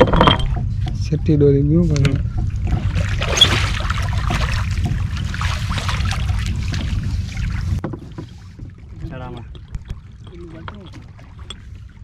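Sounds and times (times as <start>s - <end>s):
steady low rumble: 0.0s - 7.8s
water splashing and dripping: 2.3s - 12.0s.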